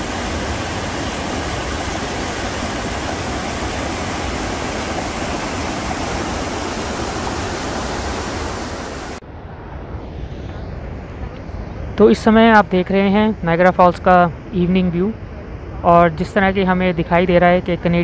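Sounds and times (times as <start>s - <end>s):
rushing white-water rapids: 0.0s - 9.2s.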